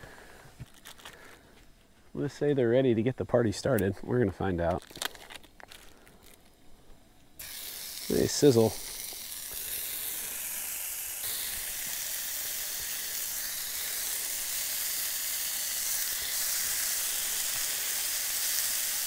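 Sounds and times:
food sizzling in a skillet: 0:07.4 - 0:19.0.

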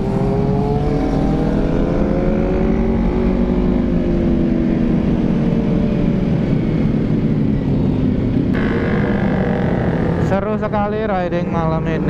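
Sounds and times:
motorcycle engine running: 0:06.4 - 0:12.0
steady higher tone: 0:08.5 - 0:12.0.

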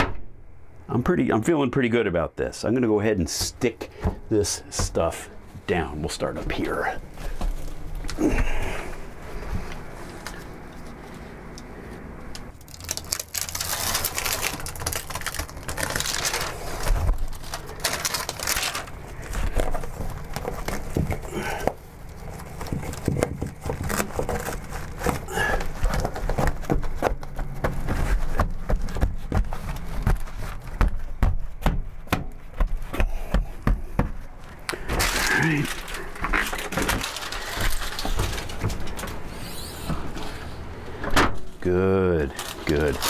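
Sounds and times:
mat rustling and crinkling: 0:03.2 - 0:43.0
backing paper peeling: 0:12.4 - 0:32.8, 0:34.2 - 0:40.6, 0:42.2 - 0:43.0.

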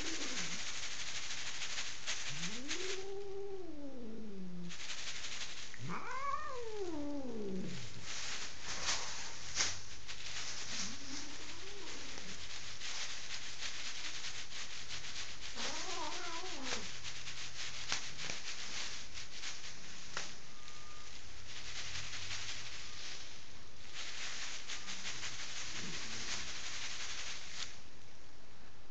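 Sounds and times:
plastic sheeting crackling: 0:00.0 - 0:28.0
angry cat yowling: 0:02.4 - 0:04.7, 0:05.8 - 0:07.9, 0:15.6 - 0:16.9.

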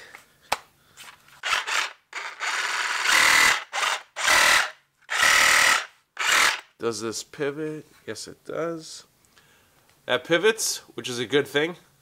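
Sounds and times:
reciprocating saw running: 0:01.4 - 0:06.6.

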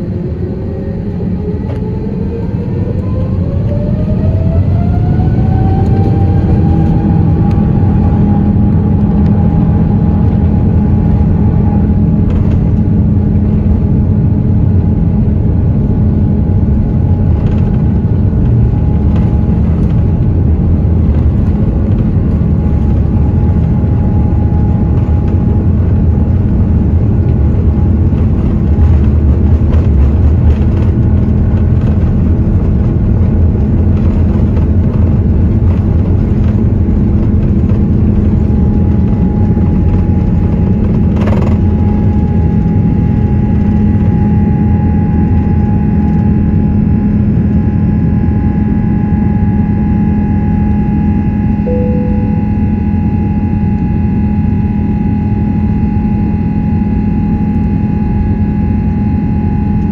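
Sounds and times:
jet engines roaring: 0:00.0 - 0:59.9.

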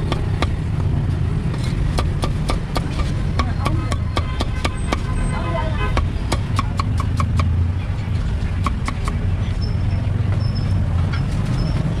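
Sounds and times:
cleaver chopping on wooden block: 0:00.0 - 0:00.6, 0:01.9 - 0:05.1, 0:06.0 - 0:07.6, 0:08.6 - 0:09.2
low street rumble: 0:00.0 - 0:12.0.

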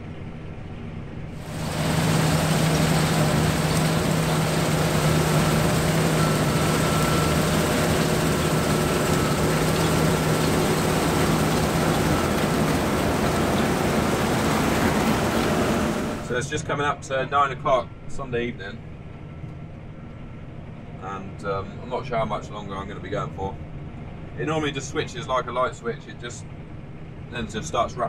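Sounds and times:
combine harvester drone: 0:00.1 - 0:16.7.

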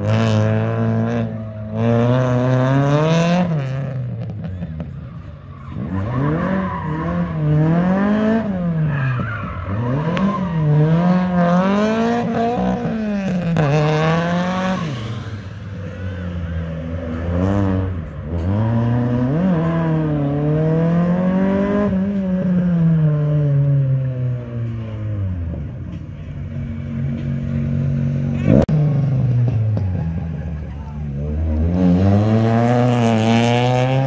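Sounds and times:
car engine revving hard: 0:31.3 - 0:34.0.

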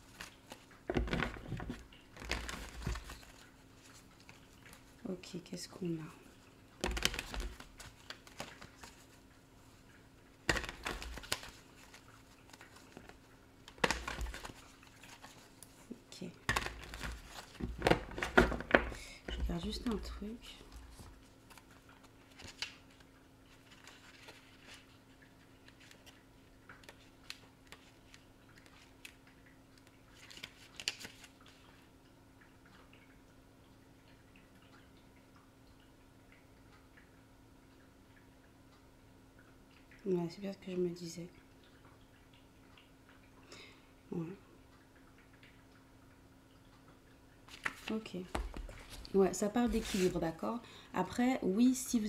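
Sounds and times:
cards being shuffled: 0:00.0 - 0:04.8, 0:06.8 - 0:09.1, 0:10.5 - 0:15.5, 0:16.4 - 0:18.9, 0:20.6 - 0:24.9, 0:30.1 - 0:31.6, 0:47.5 - 0:50.3
paper rustling: 0:00.0 - 0:04.8, 0:06.8 - 0:09.2, 0:10.5 - 0:13.2, 0:13.8 - 0:15.7, 0:20.6 - 0:25.0, 0:30.1 - 0:31.6, 0:47.5 - 0:50.3
faint steady hum: 0:00.0 - 0:52.0.

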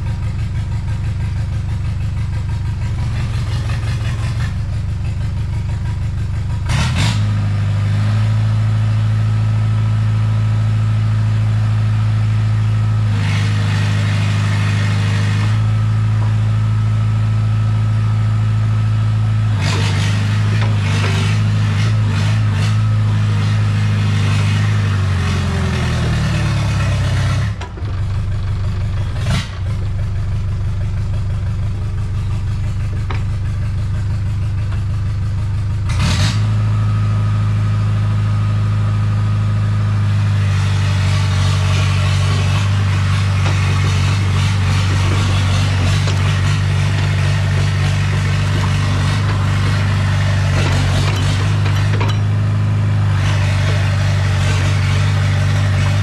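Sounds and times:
engine running: 0:00.0 - 0:56.0.

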